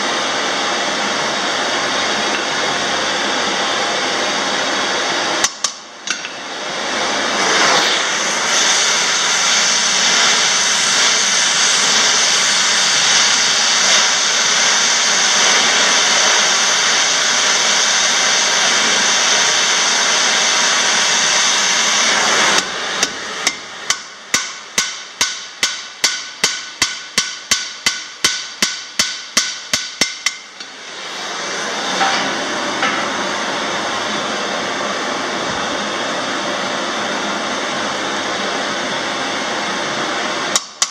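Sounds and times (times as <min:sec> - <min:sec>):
gas torch hissing: 0:00.0 - 0:26.8, 0:30.0 - 0:36.3
hammer striking hot rivet: 0:05.4 - 0:06.4, 0:23.0 - 0:30.7, 0:40.6 - 0:40.9.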